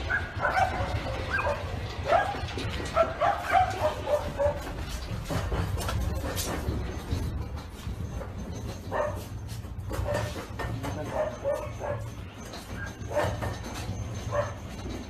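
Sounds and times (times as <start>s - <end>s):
dog barking and yelping: 0.0s - 4.8s, 8.9s - 9.3s, 11.1s - 12.2s, 12.8s - 13.6s, 14.2s - 14.7s.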